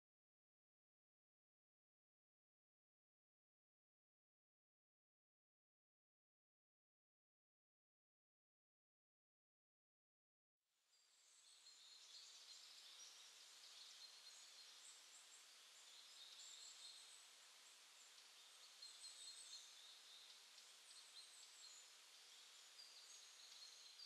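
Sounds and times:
soft steady hiss: 10.8 - 24.0
small birds chirping: 10.9 - 24.0.

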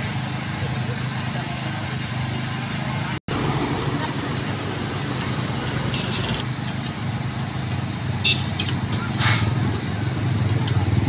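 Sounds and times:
road traffic: 0.0 - 11.0
brief hiss: 9.2 - 9.5.

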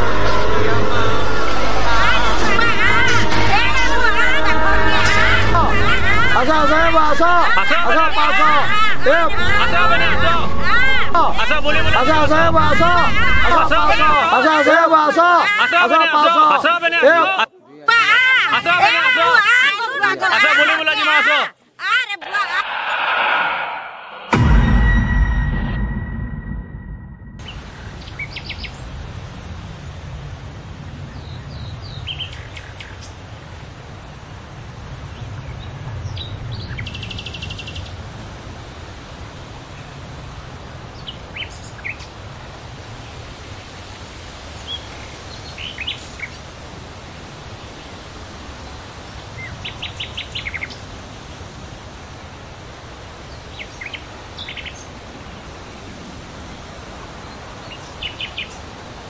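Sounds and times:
steady low rumble: 0.0 - 14.3, 22.5 - 28.0.

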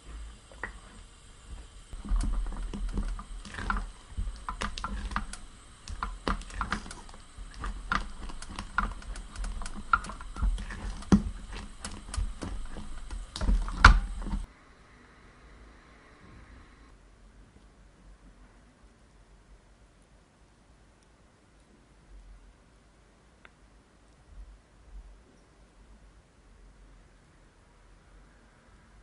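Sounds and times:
spatula scraping a saucepan: 0.0 - 14.5
sticky sounds of thick cream: 0.0 - 14.5.

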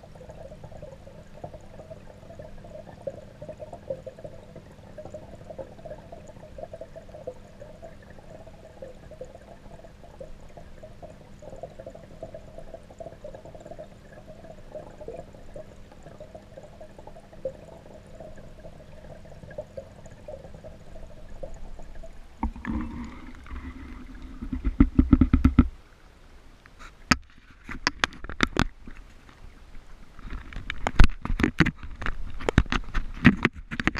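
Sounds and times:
muffled underwater hum: 0.0 - 25.7
water sloshing and splashing: 0.0 - 25.8, 26.7 - 33.9.

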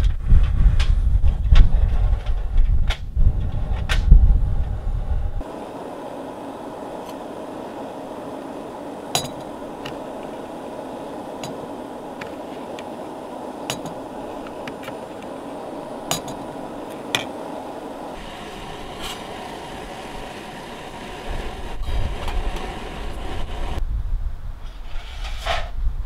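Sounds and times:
wind buffeting microphone: 0.0 - 26.0
steady hiss: 3.8 - 23.8.

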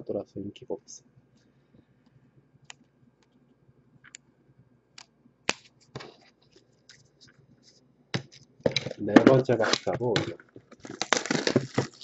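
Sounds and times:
card rustle: 8.2 - 12.0.

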